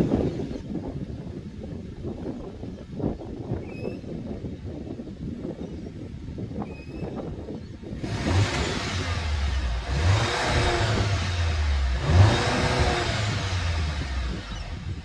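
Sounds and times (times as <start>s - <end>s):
car engine revving: 8.0s - 15.0s.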